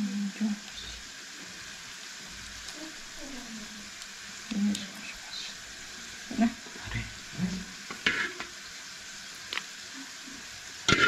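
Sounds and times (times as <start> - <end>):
frying sizzle: 0.0 - 11.0
metal ladle stirring and scraping: 8.0 - 8.5.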